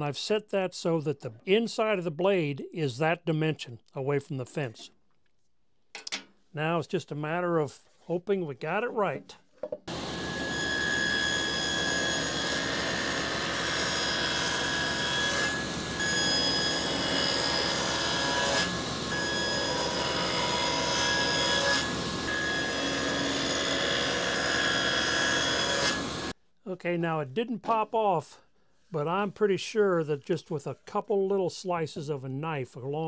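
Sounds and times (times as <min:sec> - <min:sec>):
table saw cutting wood: 0:09.9 - 0:26.3.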